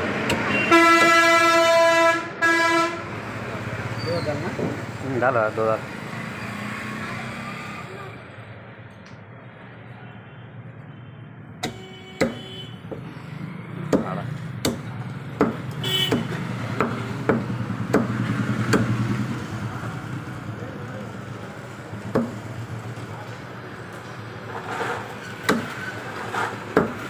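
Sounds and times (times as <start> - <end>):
road traffic rumble: 0.0 - 27.0
cleaver chopping on wooden block: 11.6 - 13.0, 13.9 - 18.9, 22.1 - 22.4, 25.5 - 25.8, 26.7 - 27.0.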